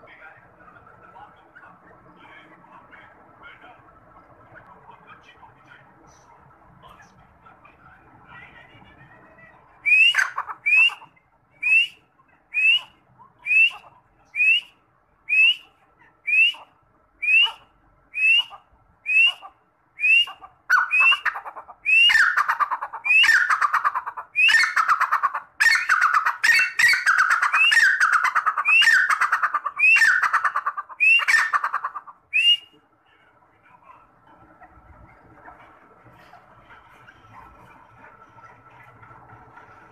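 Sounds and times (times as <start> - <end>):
francolin whistled calls: 9.8 - 22.4, 29.8 - 30.3, 31.0 - 31.5, 32.3 - 32.8.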